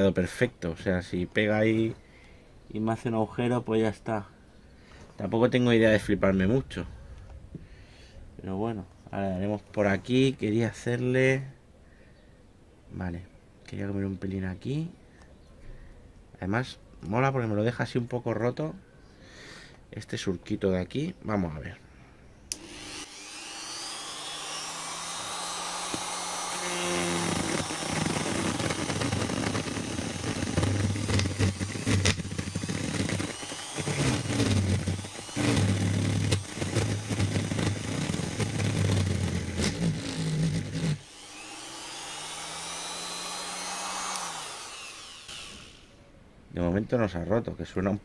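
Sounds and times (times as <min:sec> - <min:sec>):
electric grinder carving wood: 0:22.5 - 0:45.9.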